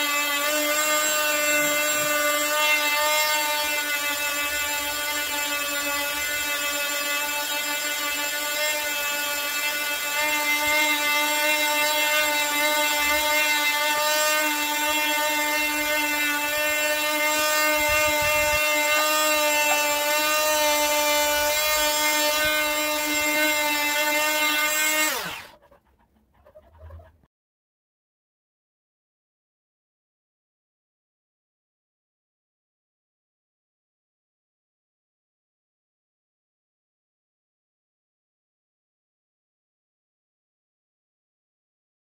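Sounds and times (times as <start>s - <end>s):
oscillating multi-tool cutting wood: 0.0s - 25.6s.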